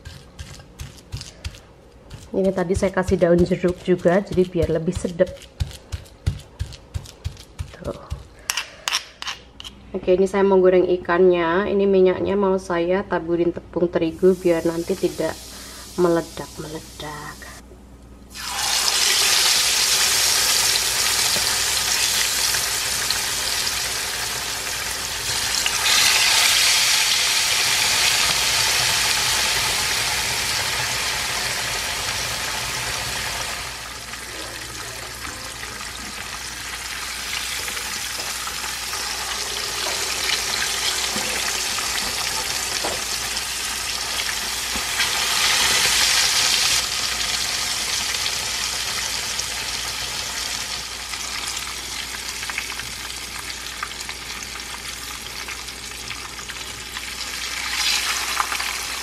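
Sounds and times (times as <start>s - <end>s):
fish deep-frying in sizzling oil: 18.3s - 59.0s.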